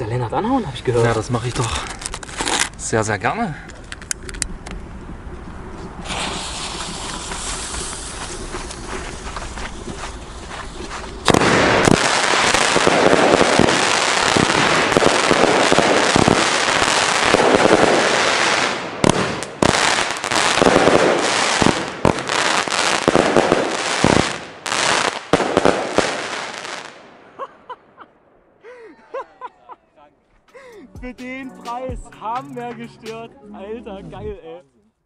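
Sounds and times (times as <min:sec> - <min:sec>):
fireworks crackling: 0:01.2 - 0:02.9, 0:05.7 - 0:27.5, 0:30.5 - 0:33.8
firework pops: 0:05.8 - 0:16.4.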